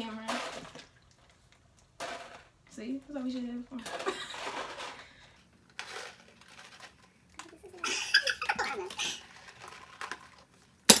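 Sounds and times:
women laughing: 3.9 - 4.6, 7.4 - 9.2.

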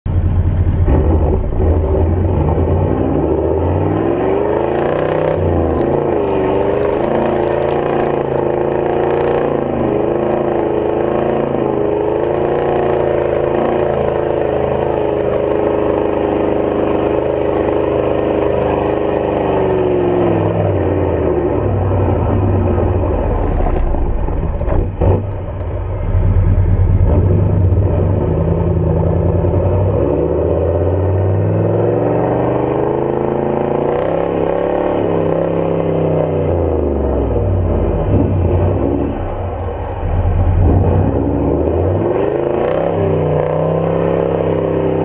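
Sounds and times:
engine revving hard: 40.6 - 44.6.

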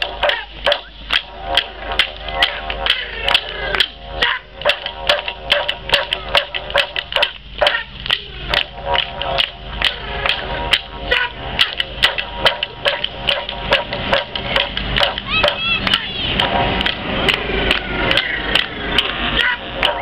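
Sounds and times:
clapsticks knocking a beat: 0.0 - 20.0
voices singing and calling out: 0.0 - 20.0.

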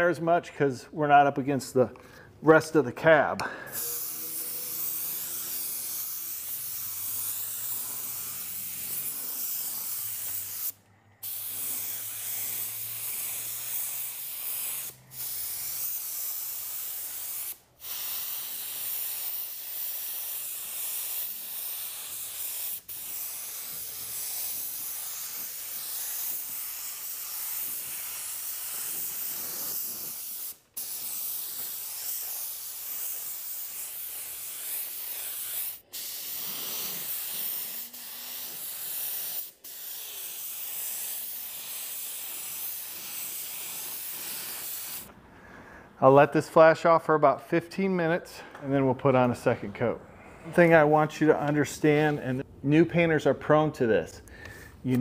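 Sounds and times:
spray gun hissing: 3.7 - 45.1.

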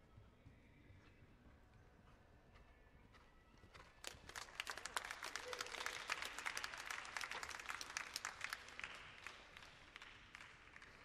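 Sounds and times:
audience applause: 4.0 - 11.0.

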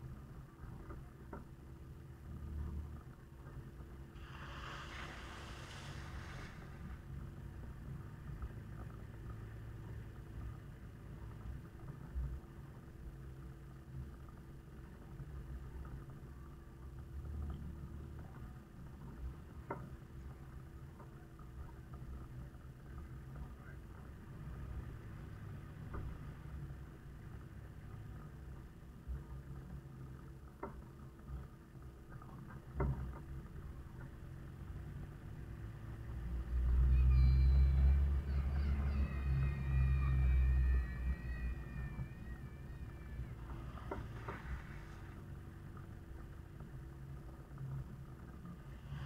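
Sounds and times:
short hissing: 4.2 - 7.0
diesel engine running: 36.4 - 45.8.

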